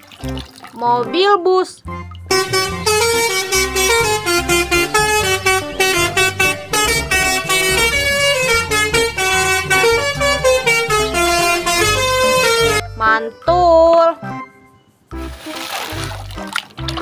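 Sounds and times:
deep pulsing sound: 2.0s - 12.8s
musical air horn melody: 2.3s - 12.9s.

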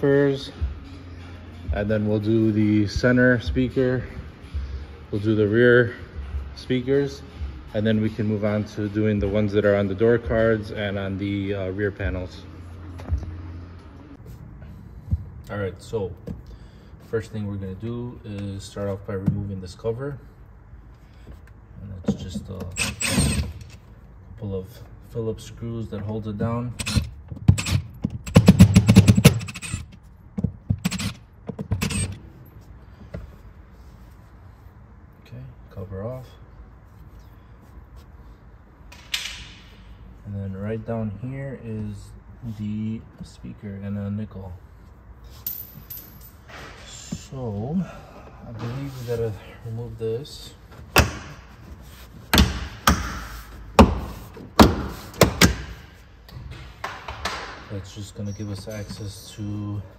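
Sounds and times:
screwdriver scraping: 26.8s - 30.0s, 30.8s - 32.2s.

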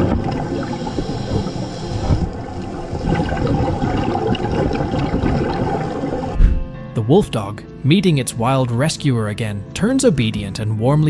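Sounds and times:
underwater air bubbling: 0.0s - 6.8s.

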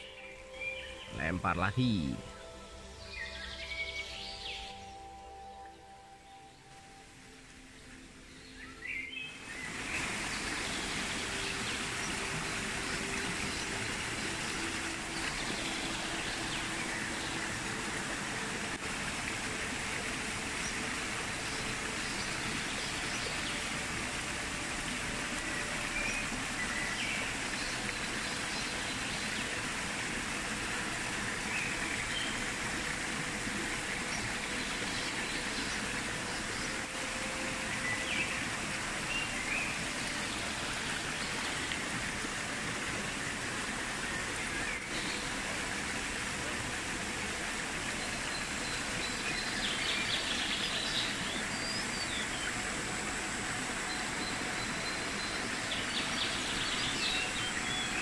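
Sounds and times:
creek running over rocks: 0.0s - 58.0s.

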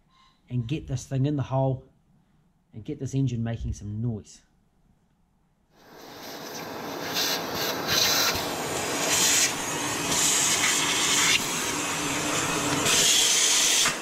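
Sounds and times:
hissing spray can: 5.8s - 14.0s
vacuum cleaner running: 5.8s - 14.0s.

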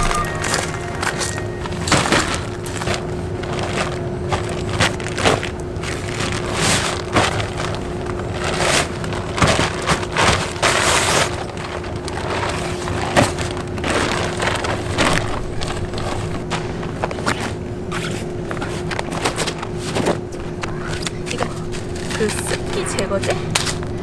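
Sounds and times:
canvas rustling and scraping: 1.3s - 20.6s.

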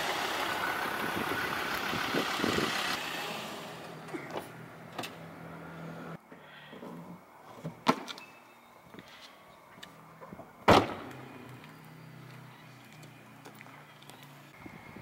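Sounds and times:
truck door slamming: 10.6s - 11.1s.

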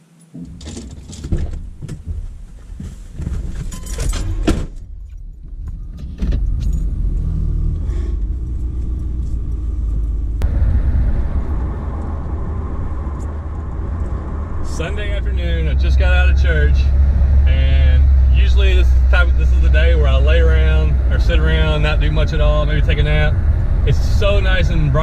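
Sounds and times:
truck door opening and shutting: 0.3s - 2.4s, 3.2s - 8.3s
truck engine running: 4.9s - 25.0s.

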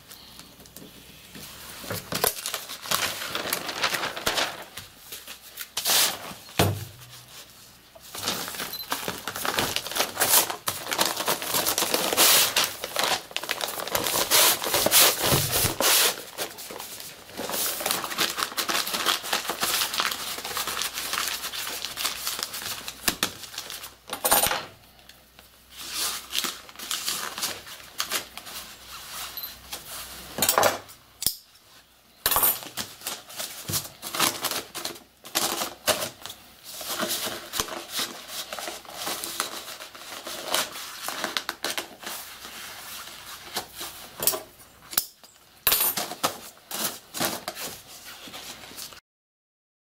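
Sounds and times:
paper rustling and crackling: 0.7s - 24.3s, 25.3s - 30.9s, 32.6s - 44.6s, 45.9s - 49.0s.

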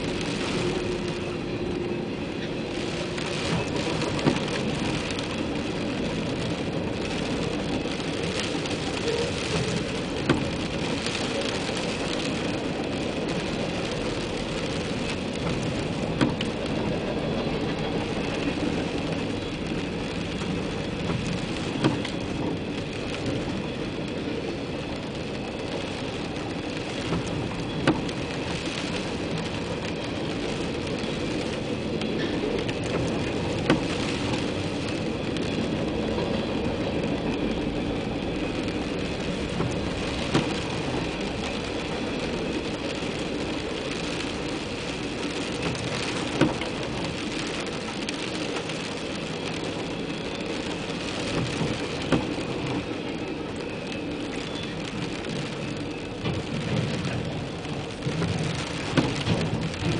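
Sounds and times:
freight train rumbling: 0.0s - 59.9s
rain on car roof: 0.0s - 59.9s
windshield wiper knock: 16.2s - 16.4s.

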